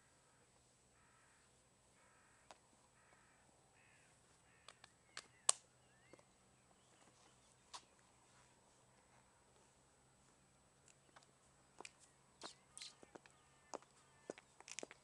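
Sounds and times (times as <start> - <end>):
bird calling: 1.0 - 8.0, 12.4 - 14.6
sharp clicks: 4.6 - 5.6.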